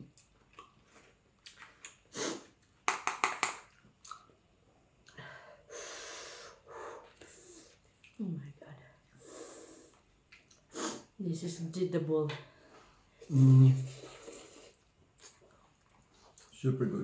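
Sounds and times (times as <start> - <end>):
person breathing sharply and sniffing: 2.1 - 2.5, 5.6 - 7.8, 9.2 - 10.0, 10.7 - 11.1.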